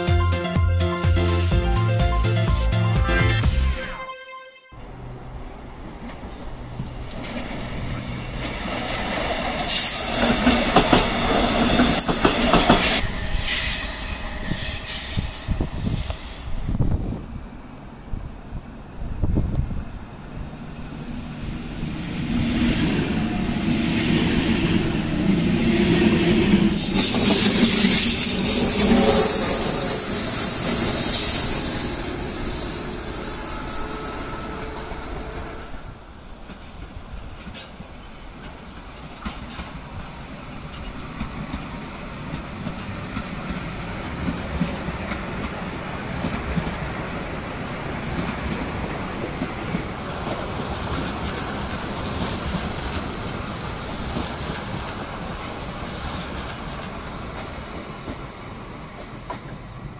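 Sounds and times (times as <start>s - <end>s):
high-speed train rolling in: 0.0s - 4.1s, 4.7s - 59.9s
distant train rumble: 4.8s - 59.9s
high hiss: 20.7s - 41.8s.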